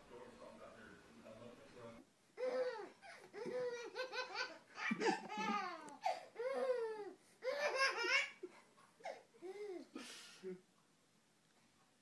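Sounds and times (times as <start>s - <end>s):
baby giggling: 2.4s - 9.8s.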